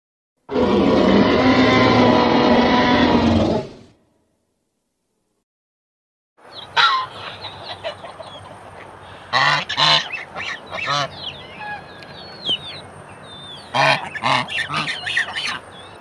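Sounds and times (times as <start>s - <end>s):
geese honking: 6.6s - 16.0s
high bird chirps: 10.1s - 16.0s.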